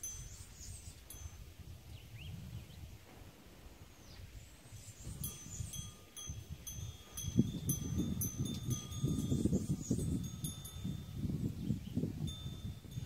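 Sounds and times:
wind chimes ringing: 0.0 - 1.6, 5.2 - 13.0
wind rumble on microphone: 0.0 - 13.0.

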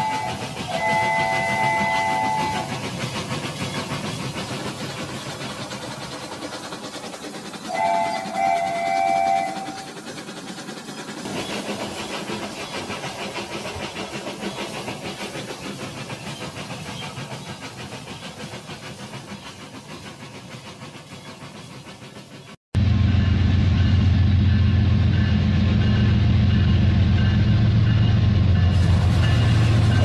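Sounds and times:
toy locomotive whistle: 0.0 - 2.7, 7.7 - 10.0.

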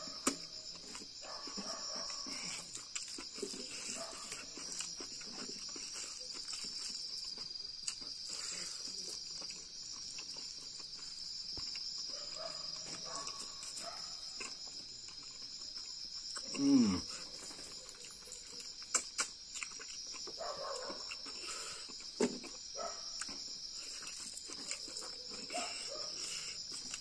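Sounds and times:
crickets chirring: 0.0 - 27.0
person eating by hand: 0.0 - 27.0.

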